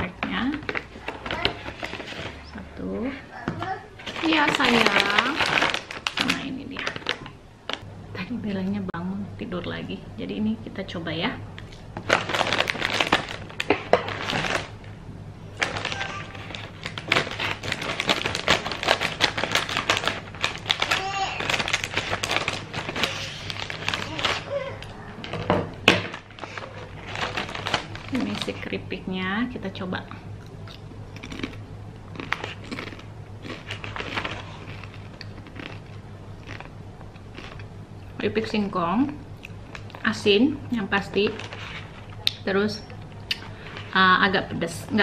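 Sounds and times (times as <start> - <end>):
plastic bag crinkling: 0.6 - 2.5, 4.0 - 7.8, 12.0 - 14.8, 15.5 - 28.8, 31.2 - 36.7, 40.9 - 42.2
chip crunching: 15.6 - 24.5, 26.1 - 28.5, 30.4 - 37.7.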